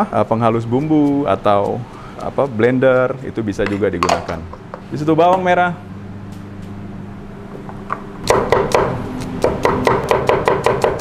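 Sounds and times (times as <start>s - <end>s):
cleaver chopping on wooden board: 7.9s - 11.0s.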